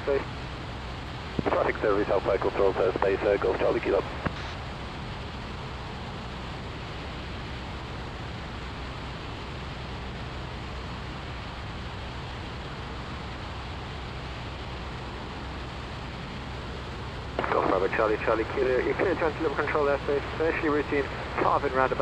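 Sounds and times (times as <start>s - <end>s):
light aircraft cabin drone: 0.0s - 22.0s
airflow hiss: 12.9s - 22.0s.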